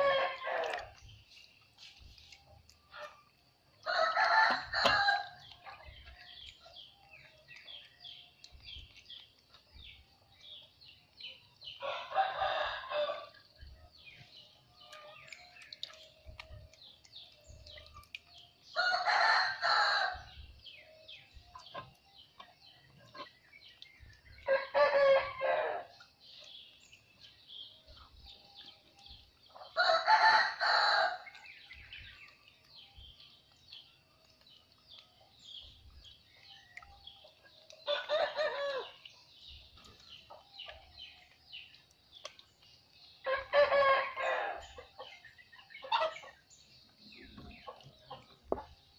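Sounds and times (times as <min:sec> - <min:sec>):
roosters crowing: 0:00.0 - 0:01.0, 0:03.8 - 0:05.4, 0:11.8 - 0:13.4, 0:18.8 - 0:20.4, 0:24.4 - 0:26.0, 0:29.7 - 0:31.3, 0:37.8 - 0:39.0, 0:43.2 - 0:45.2.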